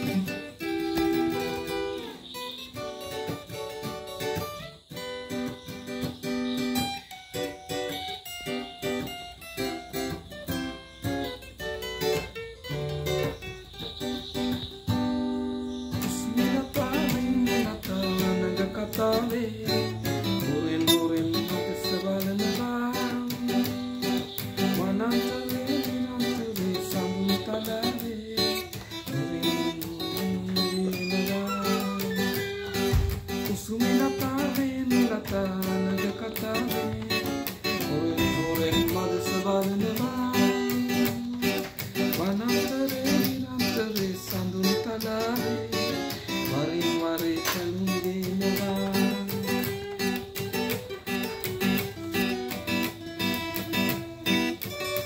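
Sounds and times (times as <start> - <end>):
acoustic guitar picking: 0.0 - 55.0
person singing: 15.9 - 54.4.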